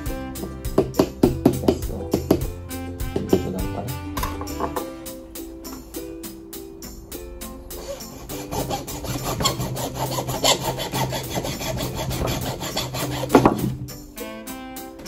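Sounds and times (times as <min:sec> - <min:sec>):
hand saw rasping: 0:07.7 - 0:14.2.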